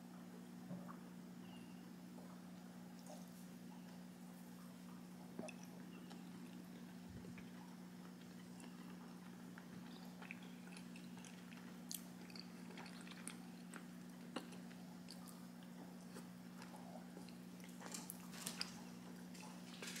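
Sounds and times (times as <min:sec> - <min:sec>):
steady low hum: 0:00.0 - 0:20.0
faint chewing with wet mouth clicks: 0:05.4 - 0:19.7.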